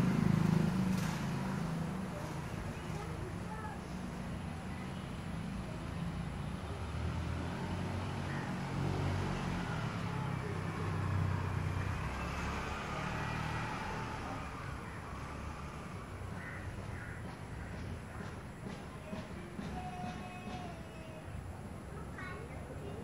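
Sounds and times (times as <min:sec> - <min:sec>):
vehicle engine humming: 0:00.0 - 0:23.0
crows cawing faintly: 0:08.1 - 0:09.1, 0:14.8 - 0:21.1.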